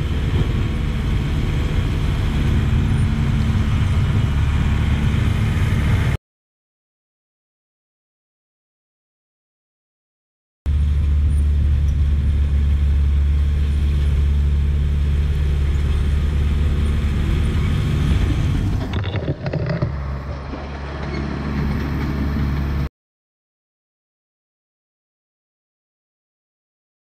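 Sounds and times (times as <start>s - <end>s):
bulldozer diesel engine: 0.0s - 6.2s, 10.7s - 22.9s.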